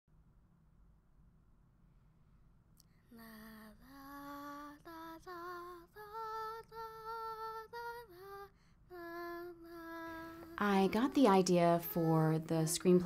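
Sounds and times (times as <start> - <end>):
woman singing wordless melody: 3.2 - 13.0.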